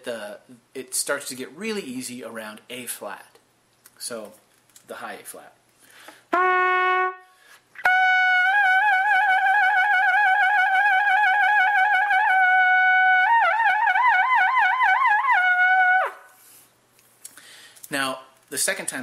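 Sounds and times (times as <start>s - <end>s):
trumpet shaking a high note: 6.3s - 16.4s.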